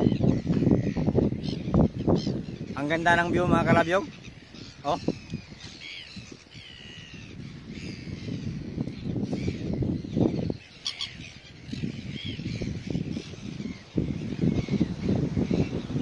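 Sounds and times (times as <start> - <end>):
gulls calling: 0.0 - 16.0.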